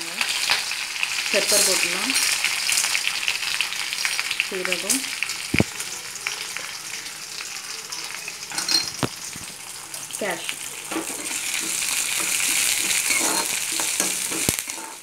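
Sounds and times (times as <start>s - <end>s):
spices sizzling in hot oil: 0.0s - 15.0s
steel spoon scraping and stirring: 11.0s - 15.0s.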